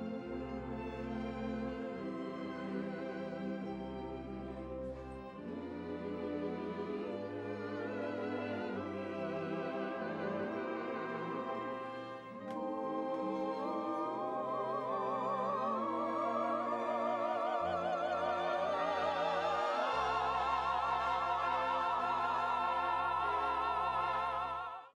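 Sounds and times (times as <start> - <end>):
orchestra: 0.0 - 25.0
voices singing with vibrato: 5.4 - 25.0.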